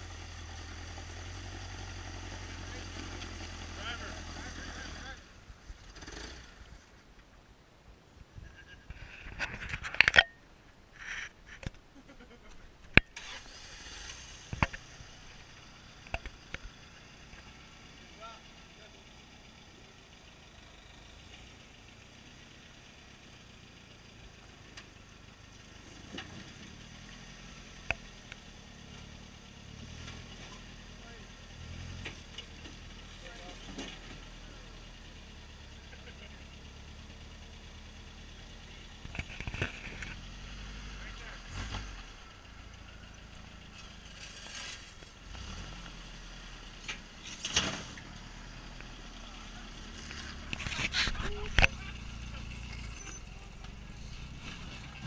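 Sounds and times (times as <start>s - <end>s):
truck engine at low revs: 0.0s - 55.0s
truck knocking and scraping on rock: 31.9s - 34.3s, 49.7s - 55.0s.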